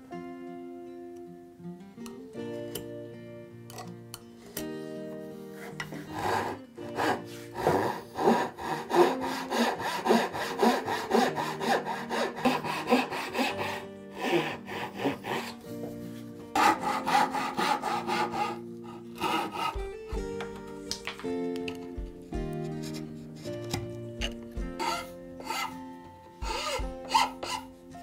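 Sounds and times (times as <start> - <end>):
hand saw cutting wood: 5.3 - 20.5, 21.6 - 28.0.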